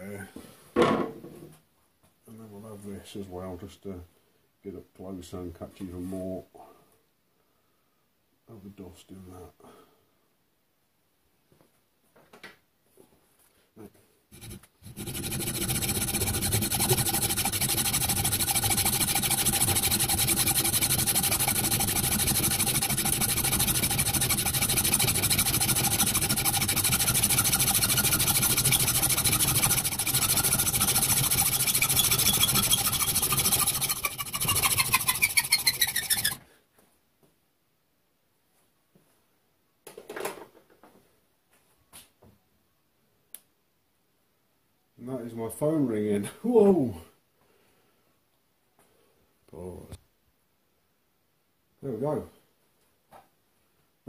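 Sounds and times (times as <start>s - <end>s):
hacksaw cutting steel: 14.4s - 36.4s.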